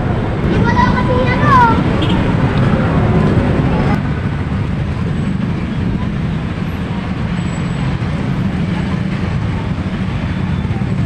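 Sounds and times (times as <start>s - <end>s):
road traffic rumble: 0.0s - 11.0s
people talking: 0.4s - 4.0s, 8.3s - 11.0s.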